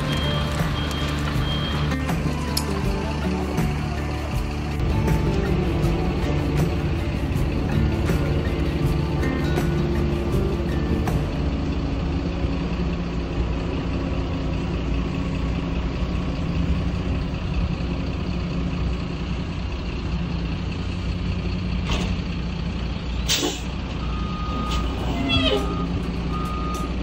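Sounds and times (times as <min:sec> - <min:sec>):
diesel engine running under load: 0:00.0 - 0:27.0
sharp air hiss: 0:23.2 - 0:23.7.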